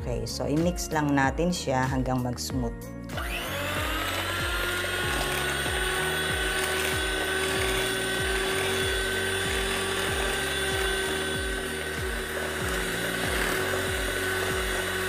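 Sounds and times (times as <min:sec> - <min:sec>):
electric hand mixer whirring: 0:03.1 - 0:15.0
low beat: 0:03.2 - 0:15.0.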